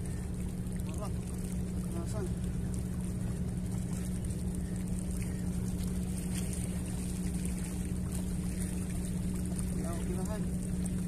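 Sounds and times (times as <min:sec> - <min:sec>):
engine droning: 0:00.0 - 0:11.0.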